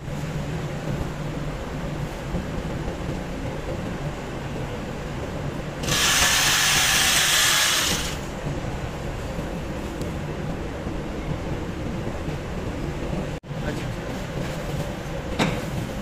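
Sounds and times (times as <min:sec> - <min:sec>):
electric sewing machine stitching: 0:05.8 - 0:08.2.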